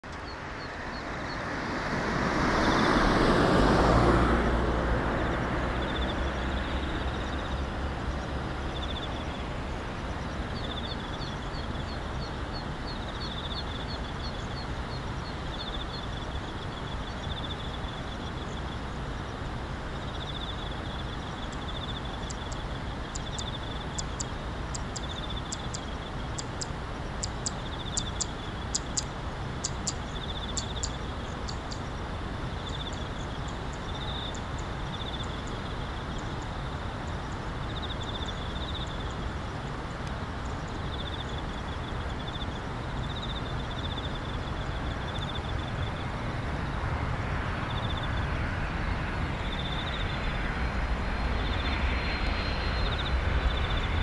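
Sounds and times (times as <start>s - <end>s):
road vehicle passing: 0.0s - 10.6s
distant jet engines rumble: 0.0s - 54.0s
insects clicking: 20.3s - 31.9s.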